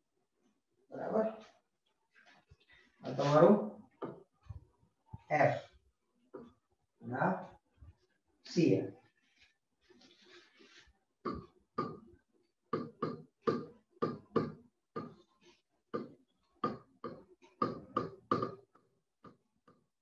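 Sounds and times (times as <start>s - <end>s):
stylus tapping on tablet: 11.3s - 12.1s, 12.8s - 15.2s, 16.0s - 19.4s.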